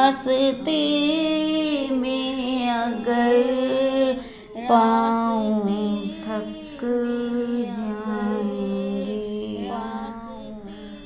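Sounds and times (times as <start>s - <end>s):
person singing devotional song: 0.0s - 11.0s.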